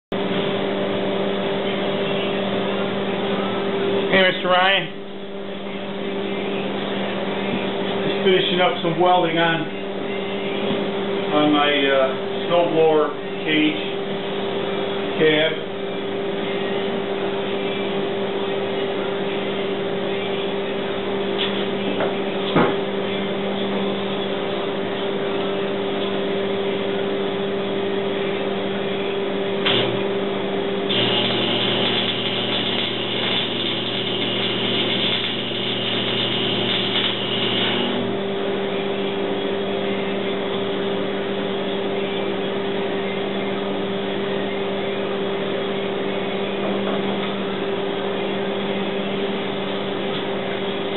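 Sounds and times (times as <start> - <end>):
constant low hum: 0.2 - 50.9
welding arc burning: 29.6 - 30.0, 30.9 - 38.1.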